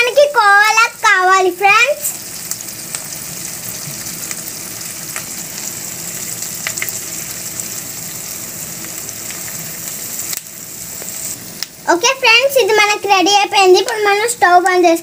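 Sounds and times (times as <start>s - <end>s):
milk bubbling and sizzling in pan: 0.0s - 15.0s.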